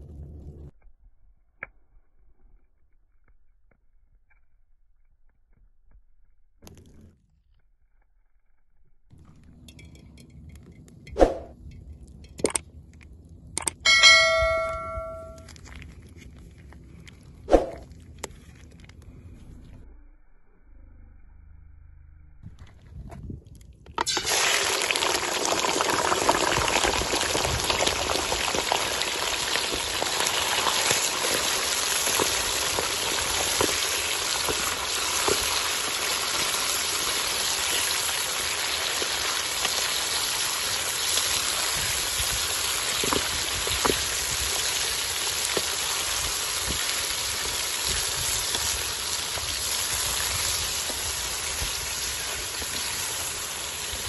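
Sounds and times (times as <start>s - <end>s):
oil popping and crackling: 23.4s - 54.0s
chicken sizzling in hot oil: 24.0s - 54.0s.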